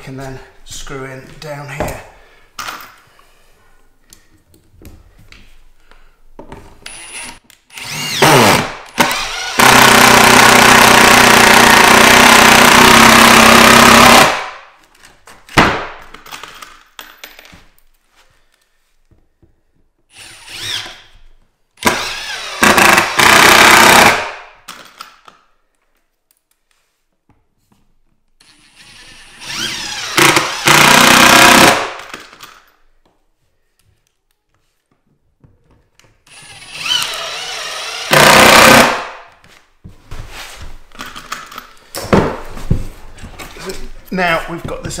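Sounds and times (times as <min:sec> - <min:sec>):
impact driver driving screws: 0:06.8 - 0:14.4, 0:21.8 - 0:25.2, 0:28.4 - 0:32.7, 0:36.3 - 0:39.1.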